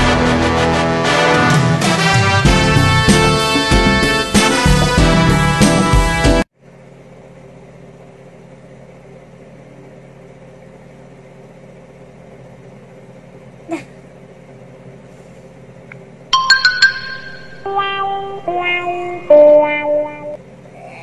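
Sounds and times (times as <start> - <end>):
echoing music: 0.0 - 6.4, 16.4 - 20.4
steady low hum: 6.5 - 21.0.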